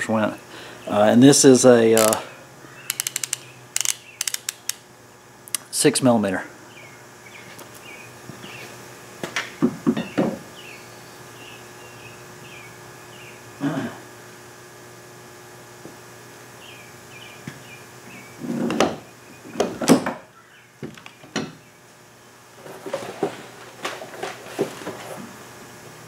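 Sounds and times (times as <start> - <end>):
sharp clicks: 2.0 - 2.2, 2.9 - 4.8.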